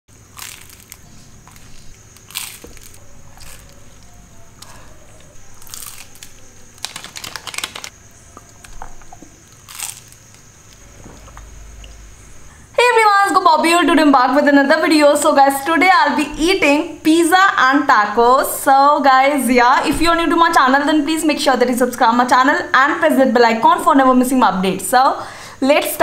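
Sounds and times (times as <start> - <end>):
crunching taco bites: 0.1 - 11.5.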